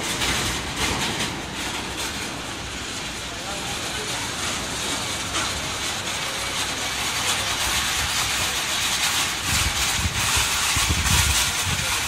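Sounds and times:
low rumbles: 0.0 - 12.0.

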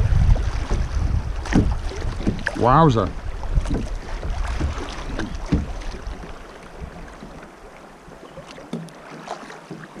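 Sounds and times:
wind gusting on microphone: 0.0 - 6.2
river current rushing: 0.0 - 10.0.

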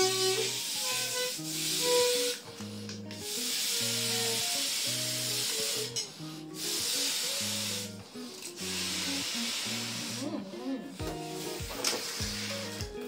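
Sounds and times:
air blown into balloon: 0.0 - 13.0
music with bass line: 7.3 - 13.0.

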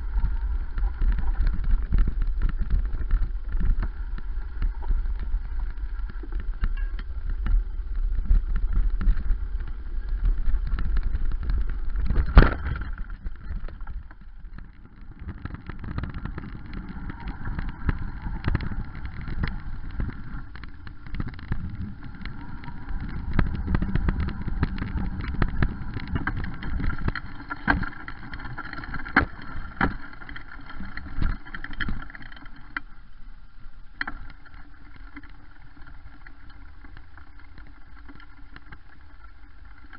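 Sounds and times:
bike knocking and rattling: 0.0 - 32.9
bike tyres on rough ground: 0.0 - 39.9
wind rumble on microphone: 0.0 - 39.9.

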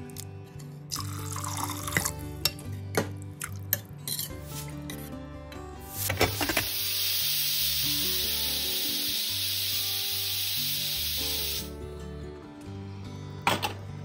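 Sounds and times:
light background music: 0.0 - 14.0
pressure cooker steam hissing: 6.0 - 11.7.

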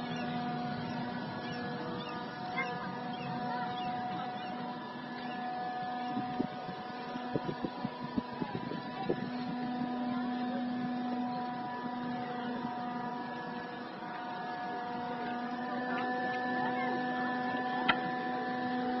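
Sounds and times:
steady machine hum: 0.0 - 19.0.

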